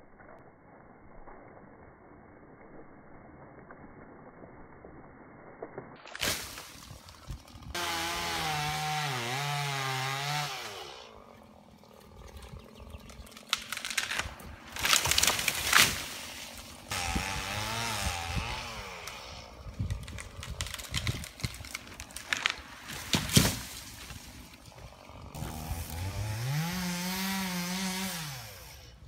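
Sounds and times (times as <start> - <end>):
tree trunk cracking and crashing: 6.0 - 11.0, 12.4 - 28.1
chainsaw revving: 7.5 - 11.4, 16.9 - 19.6, 24.7 - 29.0.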